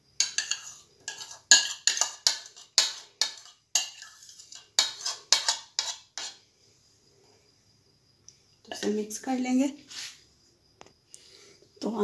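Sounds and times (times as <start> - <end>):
spoon scraping against a bowl: 0.2 - 6.4, 8.6 - 9.0.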